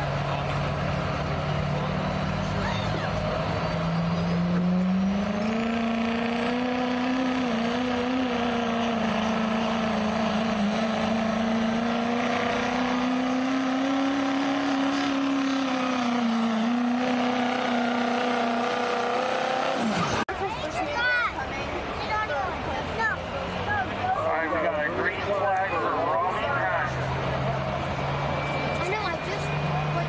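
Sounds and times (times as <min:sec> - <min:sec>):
diesel engine at full throttle: 0:00.0 - 0:20.8, 0:21.4 - 0:30.0.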